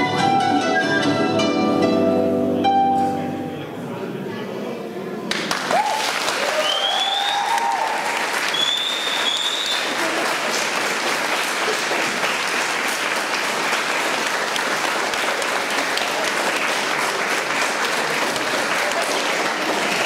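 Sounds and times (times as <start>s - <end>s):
audience applauding: 5.3s - 20.0s
high whistle: 6.5s - 7.6s, 8.4s - 9.9s.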